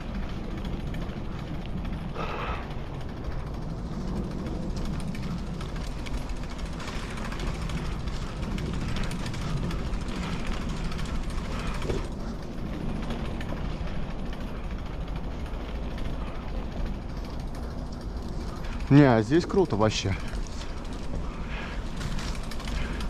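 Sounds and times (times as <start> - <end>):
bicycle tyres rolling on trail: 0.0 - 23.0
bike rattling clicks: 0.0 - 23.0.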